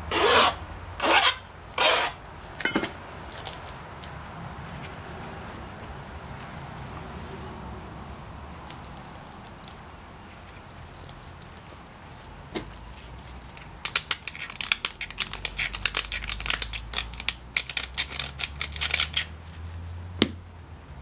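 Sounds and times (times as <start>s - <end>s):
flint knapping clicks and crackles: 3.3s - 4.1s, 8.6s - 10.0s, 10.8s - 19.4s.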